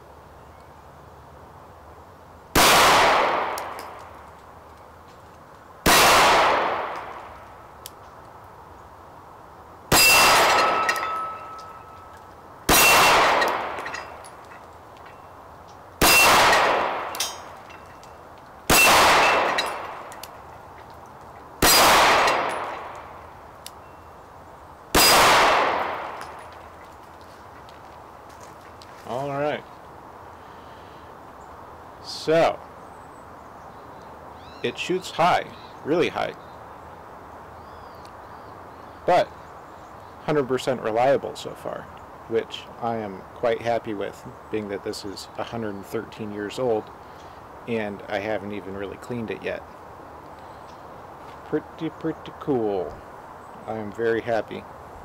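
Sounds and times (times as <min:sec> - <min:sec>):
pistol shots with echo: 0:02.6 - 0:04.0, 0:05.8 - 0:07.3, 0:09.9 - 0:11.6, 0:12.7 - 0:14.0, 0:16.0 - 0:17.5, 0:18.7 - 0:20.2, 0:21.6 - 0:23.1, 0:24.9 - 0:26.4.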